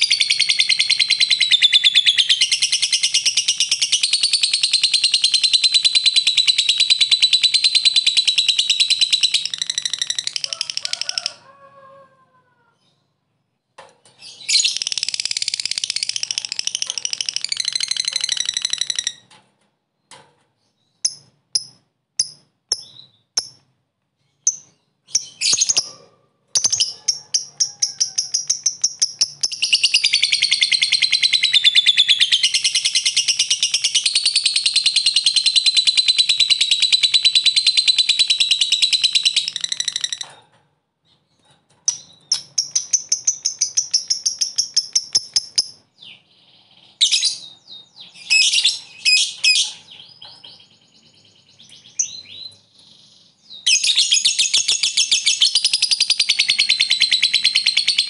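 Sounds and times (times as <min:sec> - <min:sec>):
lovebird cackling trill: 0:00.0 - 0:12.0.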